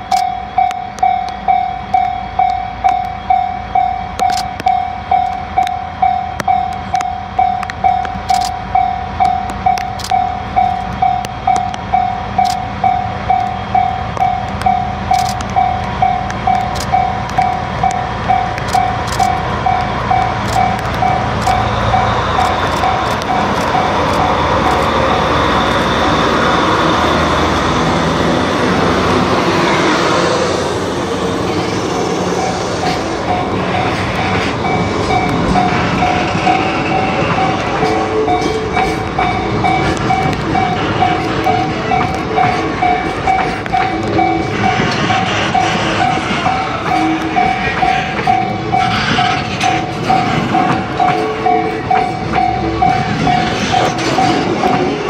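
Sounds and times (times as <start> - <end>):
warning bell dinging: 0.0 - 24.7, 32.4 - 48.9, 50.0 - 55.0
diesel locomotive engine: 0.0 - 55.0
freight wagons rolling over rails: 30.7 - 55.0.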